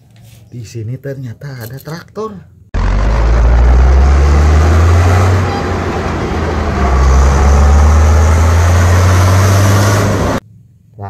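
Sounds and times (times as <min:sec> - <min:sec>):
tractor engine droning: 0:02.8 - 0:10.4.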